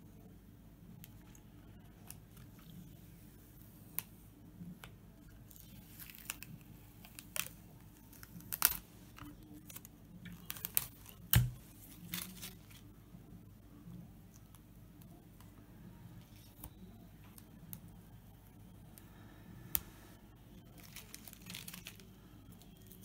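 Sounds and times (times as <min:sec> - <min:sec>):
adhesive film peeling crackles: 0:05.4 - 0:12.9, 0:20.5 - 0:23.0
film snapping: 0:05.5 - 0:12.8.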